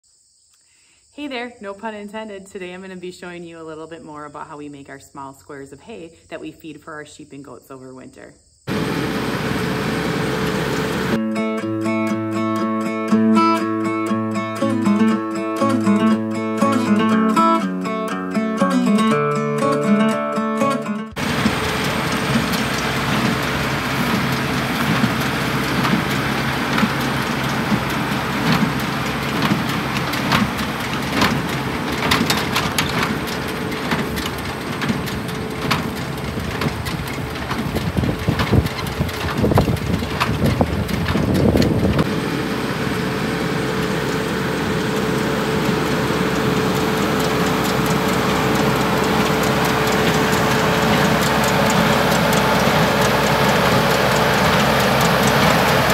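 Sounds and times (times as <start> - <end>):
tractor engine running: 8.7 - 18.1, 20.7 - 55.9
baler knocking and rattling: 21.2 - 42.1.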